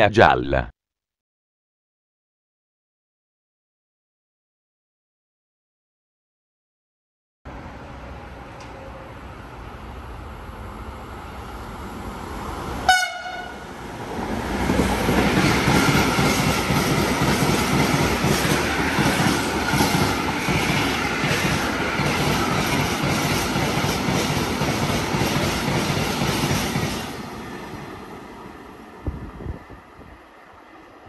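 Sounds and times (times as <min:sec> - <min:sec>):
freight train passing: 0:07.5 - 0:31.0
short train horn toot: 0:12.9 - 0:13.6.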